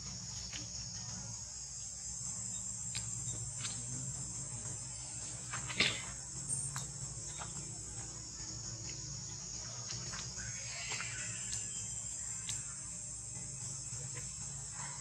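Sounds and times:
high-pitched insect chorus: 0.0 - 15.0
faint clicks: 12.4 - 12.7.

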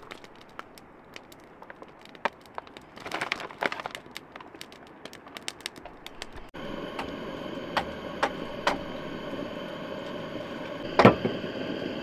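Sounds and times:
plastic bag crinkling: 0.0 - 6.5.

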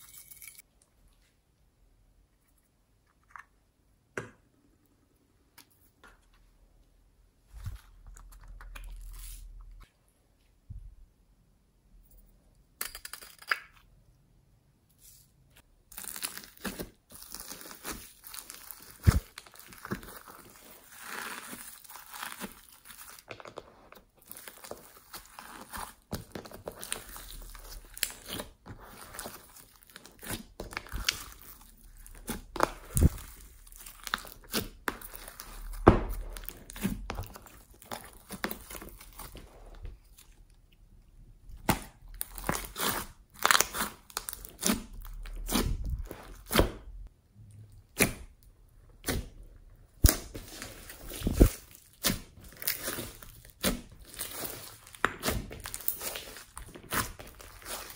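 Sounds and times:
slime popping and crackling: 24.2 - 39.4, 41.5 - 46.8, 47.8 - 57.9.

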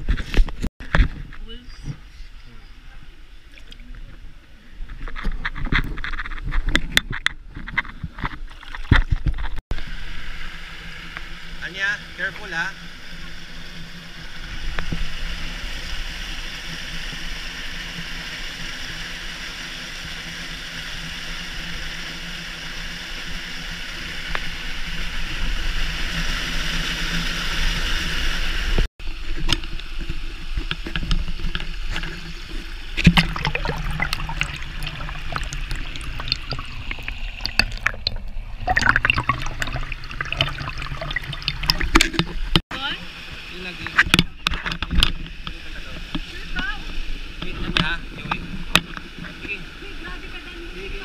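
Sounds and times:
water rushing: 0.8 - 51.0.

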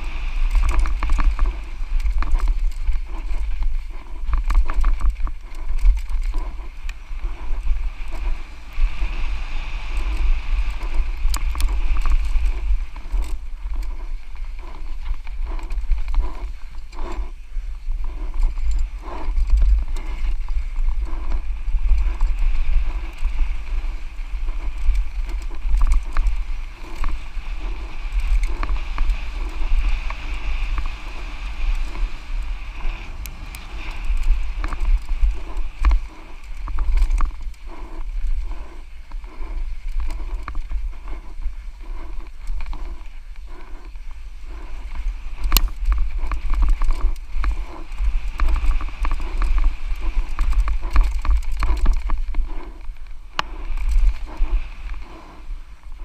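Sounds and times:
bike rattling and knocking: 0.0 - 55.2
wind rumble on microphone: 0.0 - 56.0.

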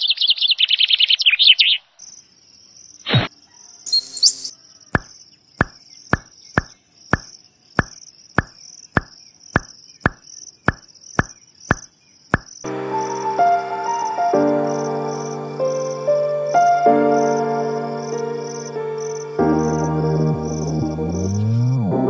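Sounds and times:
pop sound effects: 5.0 - 12.5
background music: 12.7 - 22.0.

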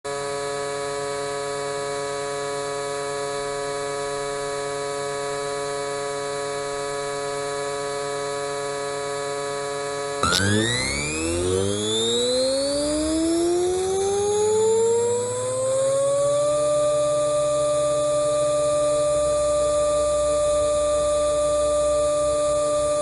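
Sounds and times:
electronic drone of held tones: 0.1 - 23.0
cluster of tones gliding upward: 10.2 - 14.2.

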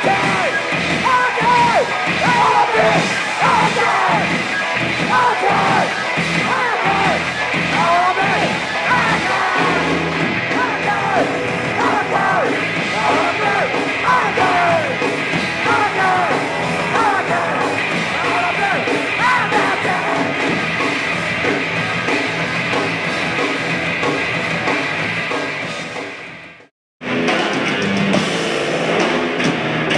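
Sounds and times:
shouted vocals: 0.0 - 4.4, 5.0 - 20.4
punk band playing live: 0.0 - 29.9.

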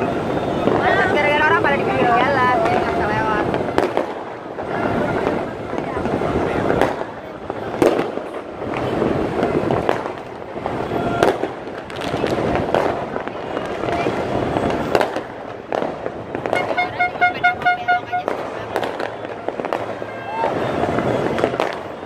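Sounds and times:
crowd voices: 0.0 - 22.0
fireworks popping: 0.0 - 22.0
traffic: 0.0 - 22.0
horn tooting: 16.5 - 18.4.

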